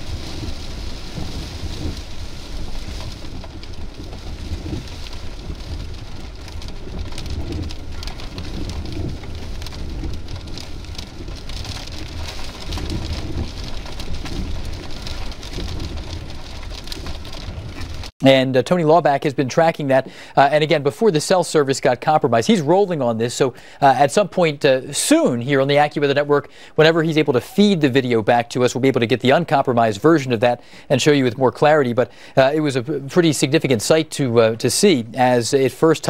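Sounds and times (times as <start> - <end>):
wind buffeting microphone: 0.0 - 18.1
heavy rain pattering: 0.0 - 36.0.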